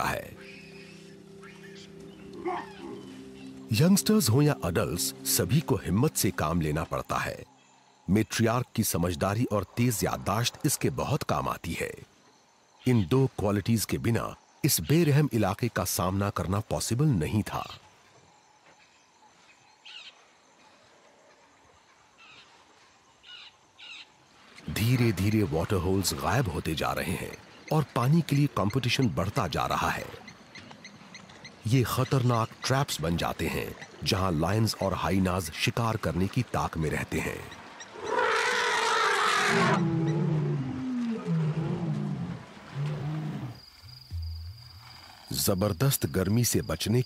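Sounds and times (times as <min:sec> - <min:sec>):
drawn-out animal calls: 0:00.0 - 0:04.9, 0:37.4 - 0:43.6
lions growling: 0:02.3 - 0:03.2, 0:37.9 - 0:43.6.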